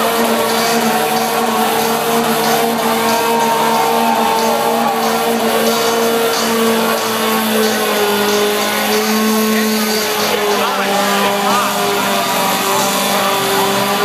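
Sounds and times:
car engine at high revs: 0:00.0 - 0:14.0.

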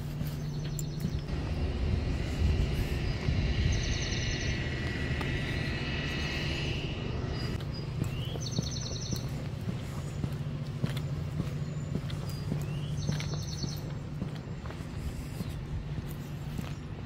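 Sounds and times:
low microphone rumble: 0:00.0 - 0:13.0
footsteps on pavement: 0:00.0 - 0:17.0
bird trilling: 0:02.6 - 0:10.2, 0:11.6 - 0:14.1.

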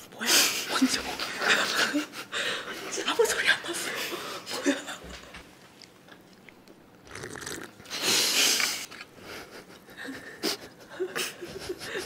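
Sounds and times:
crispy food crunching when chewed: 0:05.7 - 0:07.9.

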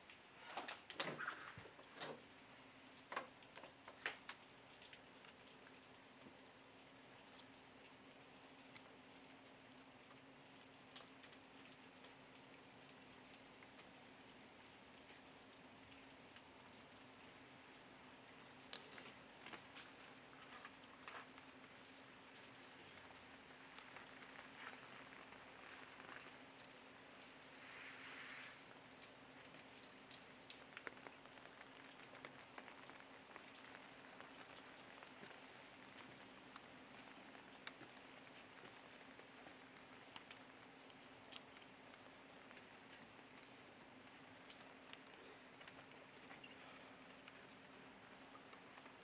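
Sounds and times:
faint hum and hiss: 0:00.0 - 0:49.0
light rain: 0:00.0 - 0:49.0
faint ticks: 0:14.9 - 0:21.5.

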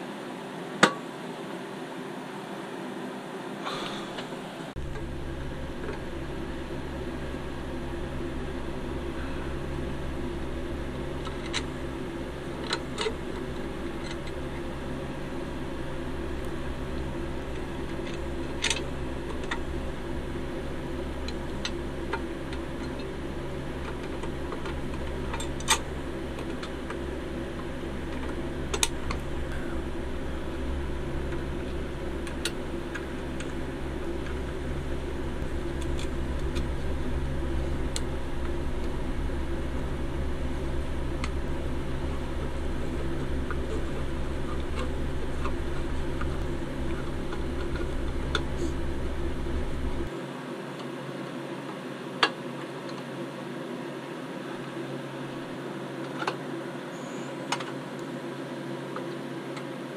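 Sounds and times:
low machine hum: 0:00.0 - 0:50.2.

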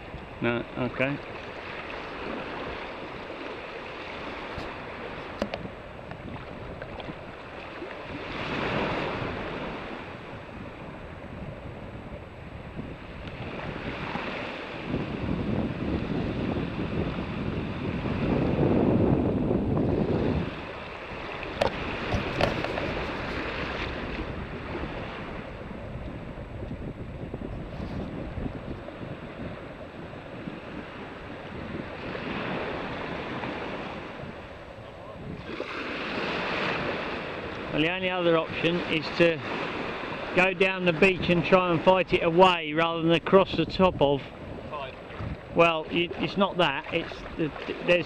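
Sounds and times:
gentle surf: 0:00.0 - 0:48.0
wind buffeting microphone: 0:00.0 - 0:48.0.

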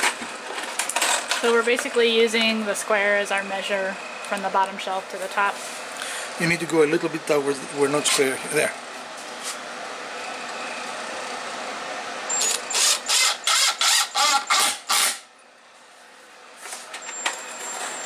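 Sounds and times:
cordless drill driving screw: 0:12.3 - 0:15.2.

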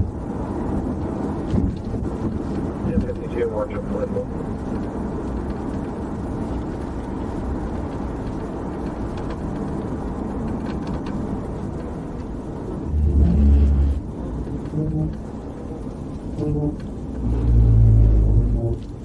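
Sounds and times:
car road and engine noise: 0:00.0 - 0:19.0
low hum: 0:12.5 - 0:19.0.

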